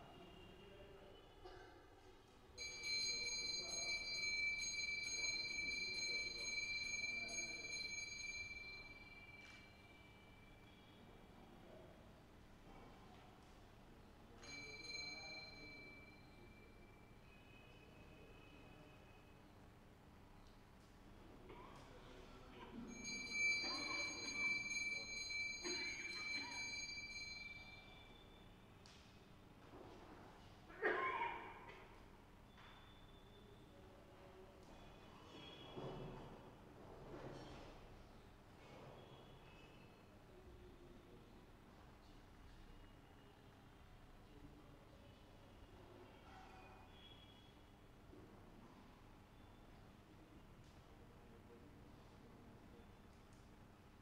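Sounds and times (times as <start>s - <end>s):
hand bell ringing: 2.6s - 9.6s, 14.4s - 16.4s, 22.9s - 28.2s.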